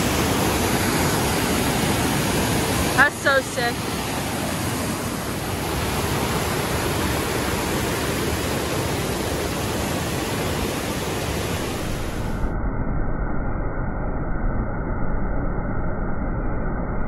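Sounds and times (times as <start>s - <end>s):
water rushing over rocks: 0.0s - 12.3s.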